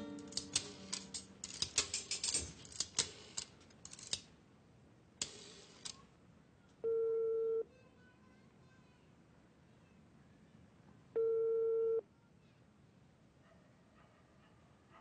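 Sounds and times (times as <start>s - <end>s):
telephone ringing tone: 6.8s - 7.6s, 11.2s - 12.0s.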